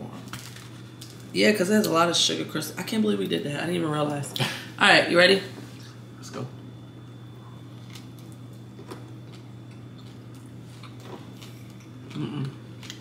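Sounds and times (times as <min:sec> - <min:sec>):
people chewing: 0:07.5 - 0:13.0
person humming: 0:12.1 - 0:12.6.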